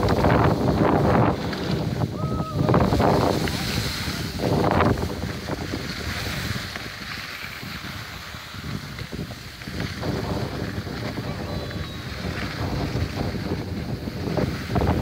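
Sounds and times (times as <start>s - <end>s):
skis scraping over snow: 0.0s - 15.0s
wind on microphone: 0.0s - 15.0s.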